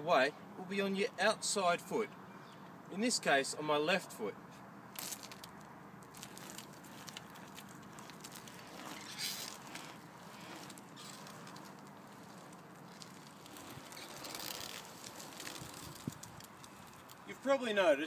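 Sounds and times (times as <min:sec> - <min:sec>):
scooter wheels rolling on asphalt: 0:04.7 - 0:18.0.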